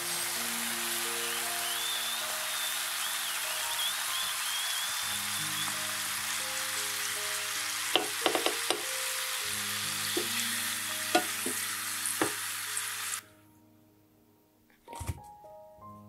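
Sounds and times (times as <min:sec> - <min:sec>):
dough sizzling in hot oil: 0:00.0 - 0:13.2
soft background music: 0:00.0 - 0:16.0
utensils knocking against pot: 0:07.9 - 0:08.9, 0:11.1 - 0:11.6.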